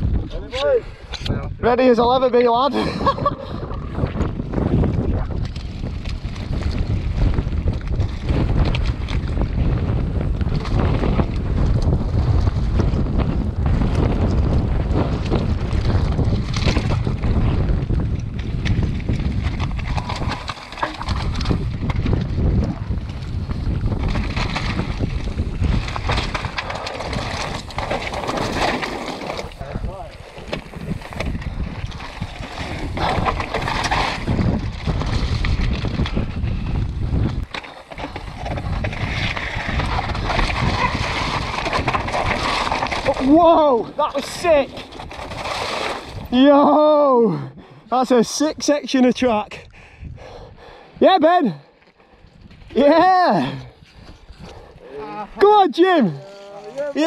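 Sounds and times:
wind buffeting microphone: 0:00.0 - 0:46.6, 0:47.2 - 0:55.5
stones and bike rattling: 0:00.0 - 0:47.2, 0:48.0 - 0:50.1, 0:51.1 - 0:57.0
tyres crunching over loose shale: 0:18.0 - 0:36.1, 0:37.1 - 0:46.4.

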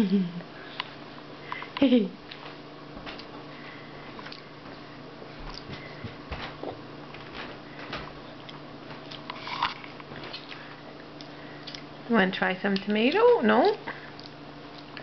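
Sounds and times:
steady low hum: 0:00.0 - 0:15.0
toddler chewing: 0:08.3 - 0:12.0.

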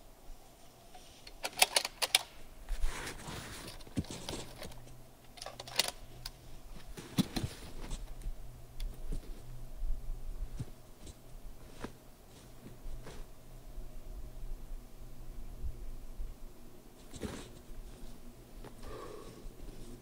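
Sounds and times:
sharp handling clicks: 0:01.2 - 0:02.4, 0:03.7 - 0:06.4
clothing and gear rustling: 0:02.6 - 0:08.2, 0:08.9 - 0:09.5, 0:10.4 - 0:13.5, 0:17.0 - 0:20.0.

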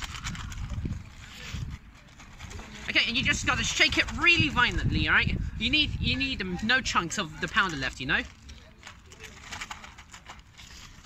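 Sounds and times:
plastic bag crinkling: 0:00.0 - 0:05.0, 0:06.9 - 0:11.0
wind on microphone: 0:00.0 - 0:06.6.

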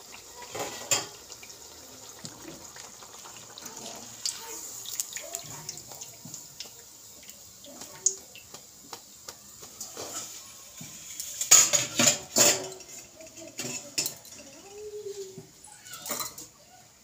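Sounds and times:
metal skimmer clanking on pan: 0:11.2 - 0:14.6.

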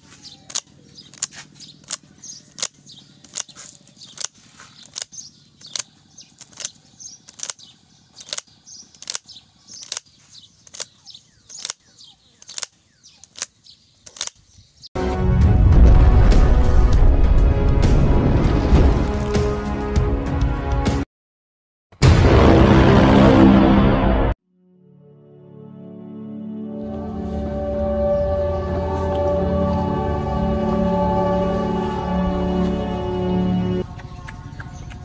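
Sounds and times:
banknotes flicked by hand: 0:00.4 - 0:14.4
loud music: 0:15.0 - 0:18.4, 0:22.0 - 0:24.4.

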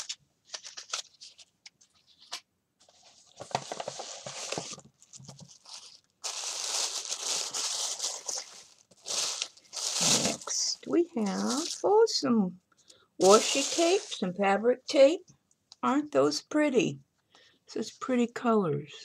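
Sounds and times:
tissue paper crinkling: 0:00.0 - 0:11.9, 0:13.2 - 0:14.3
packages clicking and rustling: 0:03.0 - 0:10.5.

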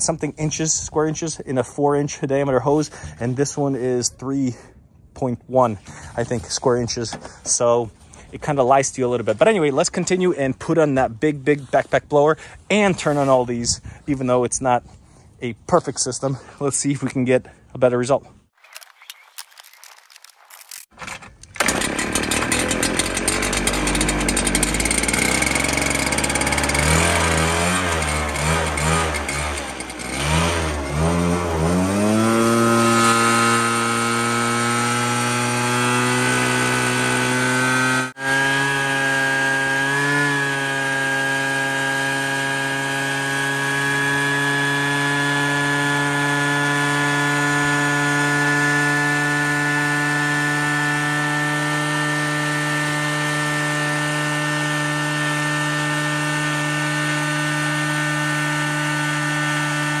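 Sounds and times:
leaf blower engine revving: 0:21.6 - 1:00.0
shop vacuums running: 0:21.6 - 1:00.0.

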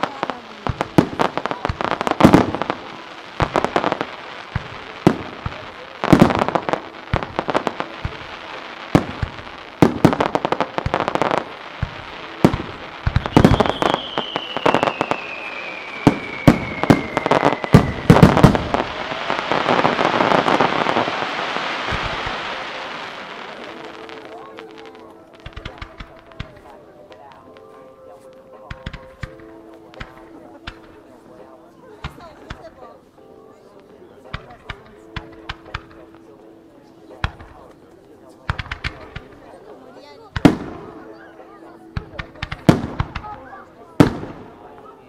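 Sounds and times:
crackle of firework stars: 0:00.0 - 0:31.4, 0:37.1 - 0:41.1
falling firework whistle: 0:13.2 - 0:20.0.

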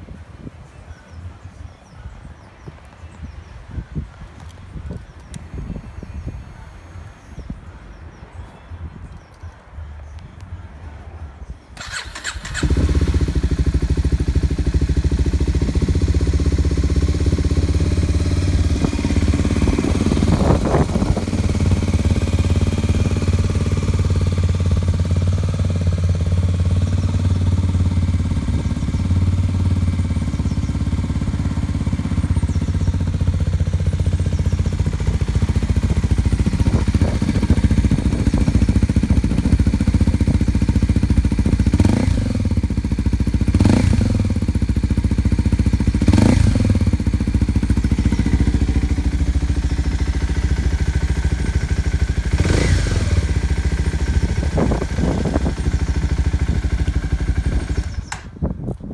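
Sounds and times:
motorcycle engine starting and idling: 0:11.7 - 0:58.9.

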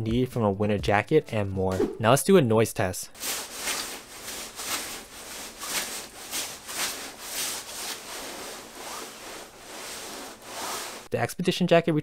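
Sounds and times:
fabric rubbing swishes: 0:03.2 - 0:11.1.

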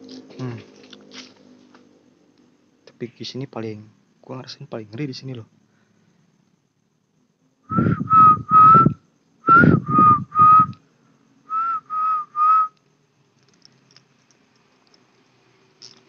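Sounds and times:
breathy low rumble: 0:07.7 - 0:10.8
person whistling short notes: 0:07.7 - 0:10.8, 0:11.5 - 0:12.8.

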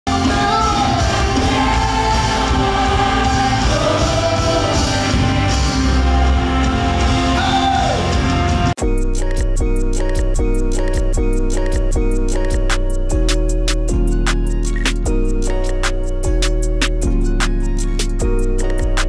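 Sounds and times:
man singing into microphone: 0:00.1 - 0:05.7
backing singers: 0:00.1 - 0:08.5
band with drums: 0:00.1 - 0:08.8.

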